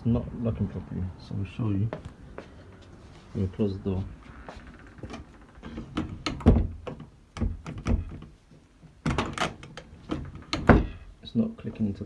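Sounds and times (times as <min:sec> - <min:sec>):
wooden door knocking against frame: 0:06.0 - 0:08.2, 0:10.5 - 0:11.0.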